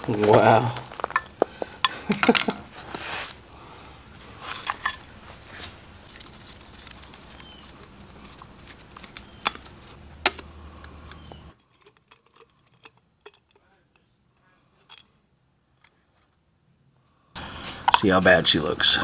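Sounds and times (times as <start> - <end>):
faint background hum: 0.0 - 19.0
screwdriver and metal parts clicking: 4.4 - 5.0, 6.0 - 14.1, 14.7 - 15.1.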